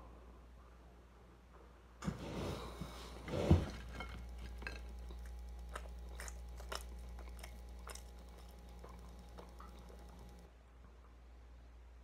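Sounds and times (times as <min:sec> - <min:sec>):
person chewing food: 0:02.6 - 0:10.5.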